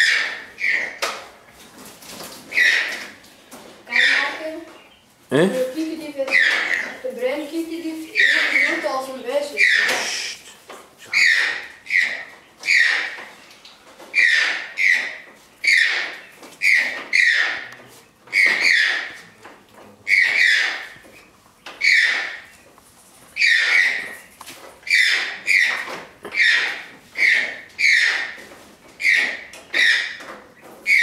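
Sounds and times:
toucan calling: 8.1s - 13.2s, 14.1s - 17.7s, 20.1s - 21.0s, 21.7s - 22.5s, 23.4s - 24.2s, 24.8s - 28.4s, 29.0s - 30.2s.

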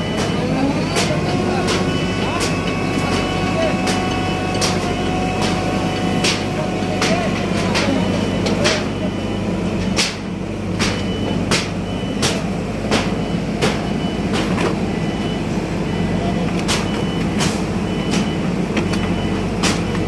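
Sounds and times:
sharp repeating knocks: 0.0s - 9.2s, 9.8s - 14.7s
diesel engine running: 0.0s - 20.0s.

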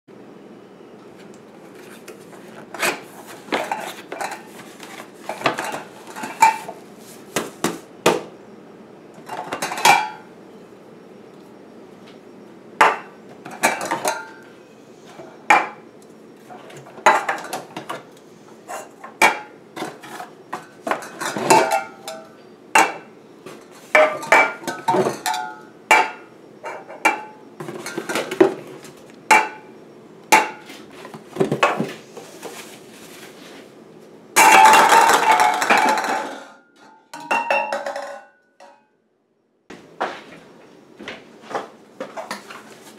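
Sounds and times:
metal cans clanking: 12.8s - 14.4s, 17.0s - 18.0s, 19.1s - 23.1s, 23.9s - 28.6s, 34.4s - 38.8s.

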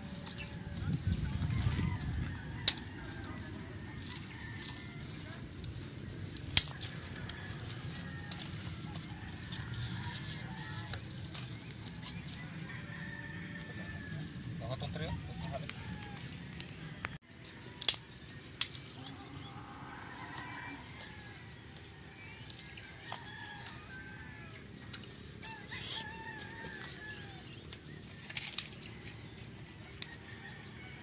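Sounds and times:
dry twigs snapping: 2.6s - 3.3s, 6.2s - 11.7s, 17.8s - 19.2s.

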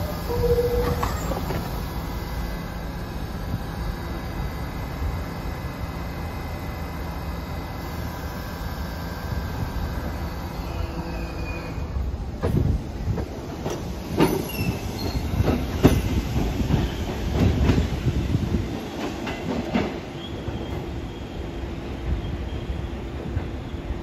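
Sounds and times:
subway train rumbling: 0.0s - 24.0s
faint wheel squeal: 10.6s - 12.0s, 14.4s - 15.3s
wheels clacking on rail joints: 12.3s - 18.1s, 18.7s - 20.9s.

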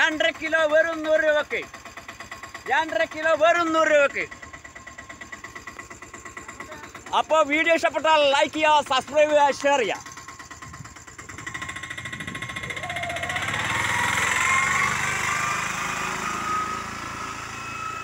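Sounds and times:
pickup truck engine passing: 11.0s - 18.0s.

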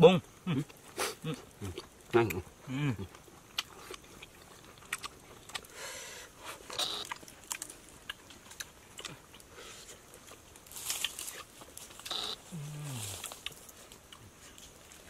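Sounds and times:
hands rustling leaves: 9.6s - 15.0s.

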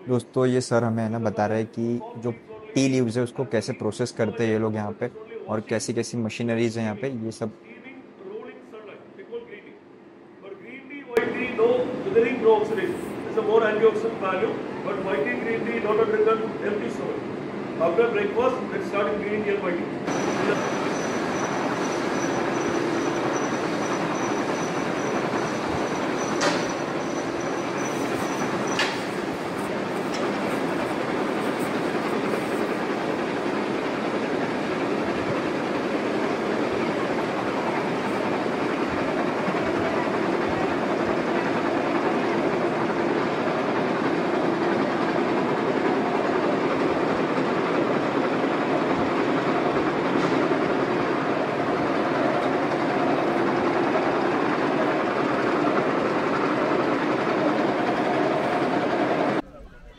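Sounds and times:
faint electric motor hum: 0.0s - 59.9s
faint high whine: 18.0s - 34.1s
machine mechanical clatter: 20.1s - 33.5s
machines clattering: 20.1s - 59.9s.

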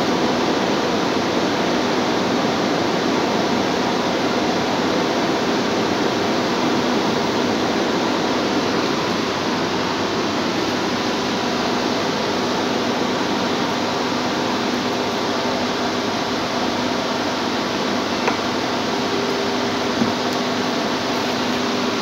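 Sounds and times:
fan rushing: 5.4s - 22.0s.

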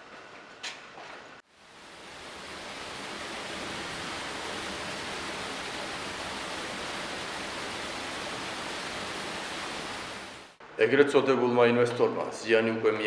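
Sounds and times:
rushing stream water: 1.6s - 10.6s.

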